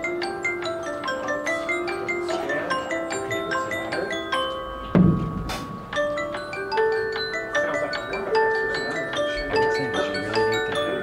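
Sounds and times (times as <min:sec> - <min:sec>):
marimba and glockenspiel playing: 0:00.0 - 0:11.0
deep drum hit: 0:05.0 - 0:05.8.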